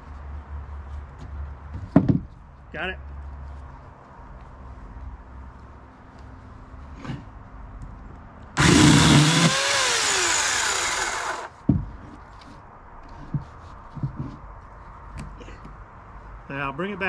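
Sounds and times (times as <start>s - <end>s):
electric chainsaw cutting branch: 8.6s - 11.6s.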